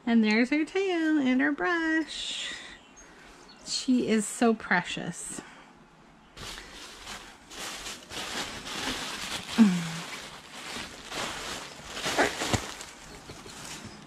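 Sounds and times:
packaging rustling and crinkling: 0:06.4 - 0:14.0.

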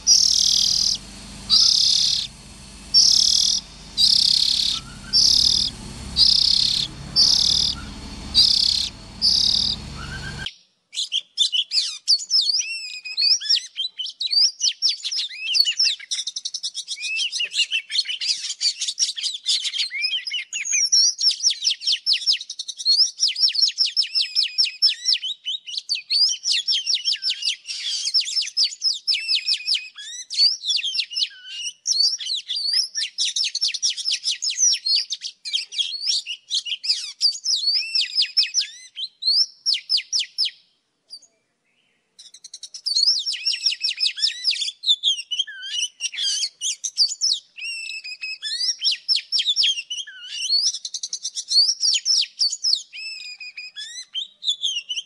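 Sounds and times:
bird singing trills and whistles: 0:23.0 - 0:55.0.

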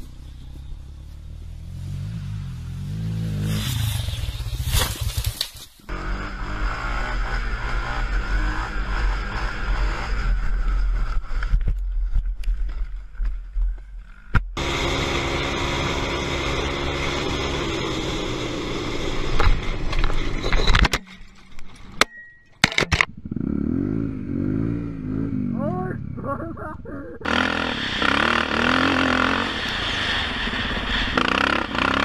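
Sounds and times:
quad bike engines running: 0:00.0 - 0:12.8, 0:14.0 - 0:20.6, 0:23.2 - 0:32.0
rumbling wind: 0:23.1 - 0:32.0.

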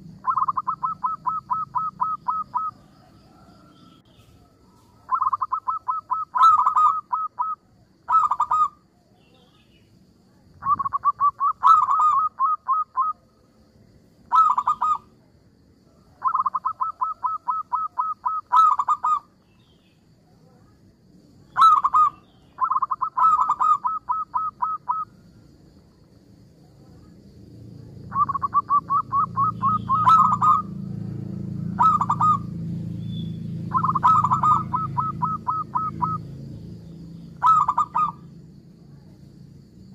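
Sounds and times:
dove cooing: 0:00.0 - 0:03.8, 0:04.4 - 0:08.8, 0:10.6 - 0:13.2, 0:14.2 - 0:15.1, 0:16.1 - 0:19.3, 0:21.6 - 0:25.1, 0:28.1 - 0:30.8, 0:31.6 - 0:32.6, 0:33.7 - 0:36.2, 0:37.4 - 0:38.2
low background rumble: 0:24.3 - 0:39.9.

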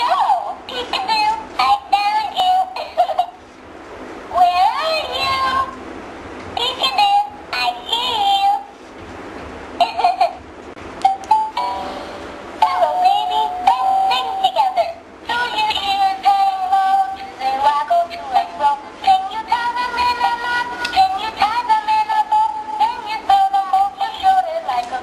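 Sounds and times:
toy singing in synthetic voice: 0:00.0 - 0:03.0, 0:04.4 - 0:05.7, 0:06.6 - 0:08.6, 0:12.6 - 0:25.0.

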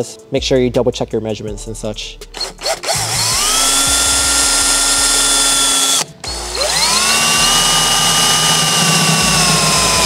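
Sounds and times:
cordless drill boring metal: 0:02.4 - 0:10.0.

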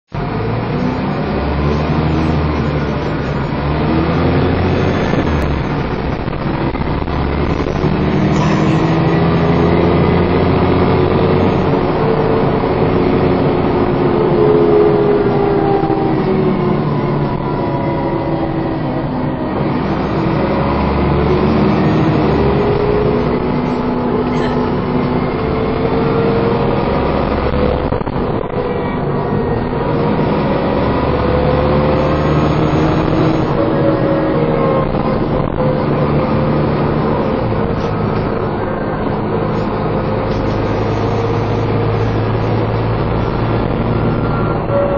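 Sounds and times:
bus engine revving: 0:00.1 - 0:44.9
bus whine: 0:00.1 - 0:44.9.

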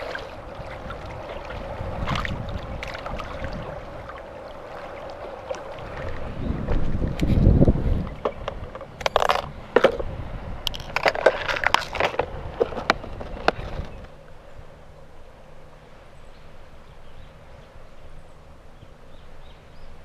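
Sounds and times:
faint outdoor background: 0:00.0 - 0:20.0.

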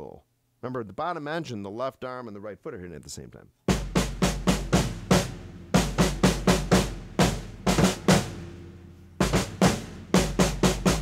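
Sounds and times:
drum kit playing straight beat: 0:03.7 - 0:11.0.

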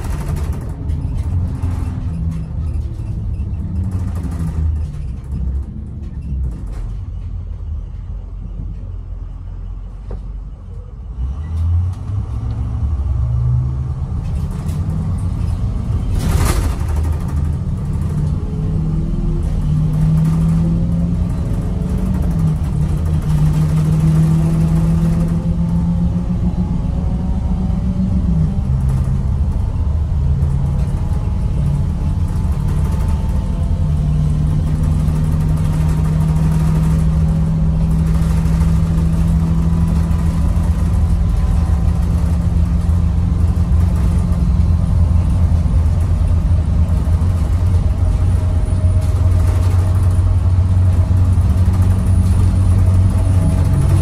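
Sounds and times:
diesel bus engine running: 0:00.0 - 0:54.0
road noise: 0:00.0 - 0:54.0.

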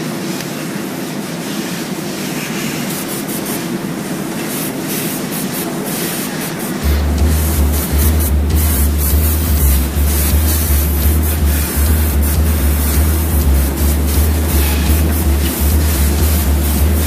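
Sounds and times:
paint spray gun hissing: 0:00.1 - 0:17.0
mechanical rumble: 0:06.3 - 0:17.0
deep low hum: 0:06.8 - 0:17.0.

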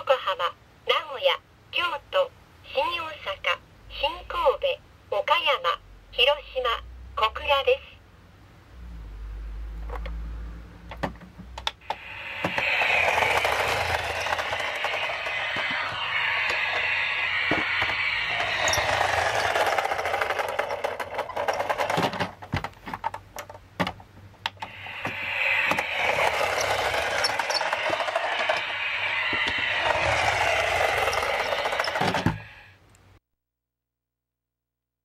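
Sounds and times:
toy train running sound effect: 0:11.8 - 0:22.2, 0:24.7 - 0:32.7.

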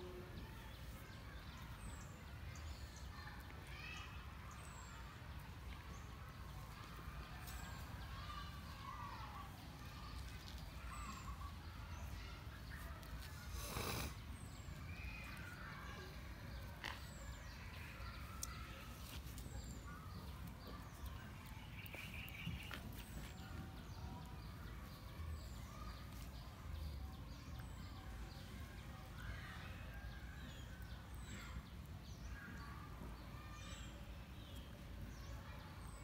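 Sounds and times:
birds chirping: 0:06.4 - 0:29.7.

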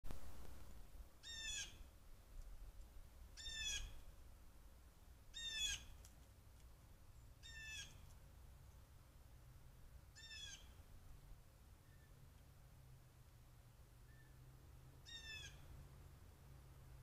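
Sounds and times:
bird calling: 0:01.2 - 0:01.9, 0:03.4 - 0:04.0, 0:05.3 - 0:06.0, 0:07.4 - 0:08.1, 0:10.2 - 0:10.8, 0:15.0 - 0:15.7.

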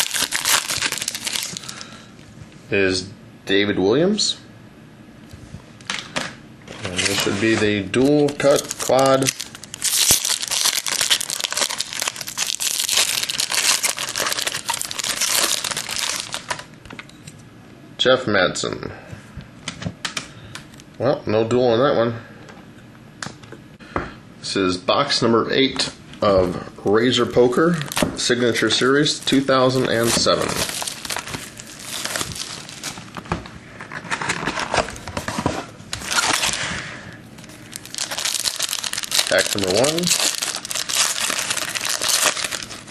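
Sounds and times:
foil wrapper crinkling: 0:00.0 - 0:01.9, 0:06.8 - 0:16.7, 0:27.7 - 0:33.2, 0:35.9 - 0:36.7, 0:37.4 - 0:42.9.

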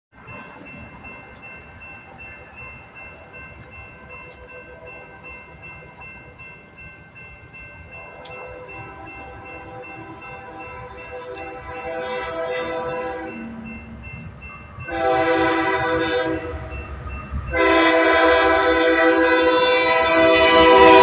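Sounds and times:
crossing warning bell ringing: 0:00.1 - 0:21.0
distant train horn chord: 0:08.0 - 0:13.9, 0:14.9 - 0:16.9, 0:17.5 - 0:21.0.

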